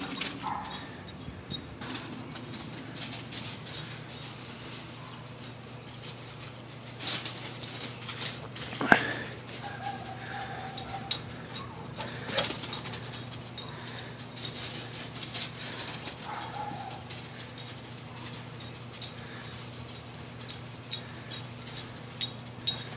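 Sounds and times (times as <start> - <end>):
dog whining: 8.8 - 14.2, 15.8 - 17.2.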